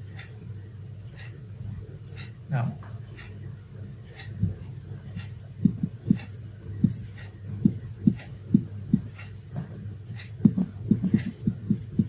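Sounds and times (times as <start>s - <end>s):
steady low hum: 0.0s - 12.0s
marker knocking on whiteboard: 5.6s - 9.7s, 10.4s - 12.0s.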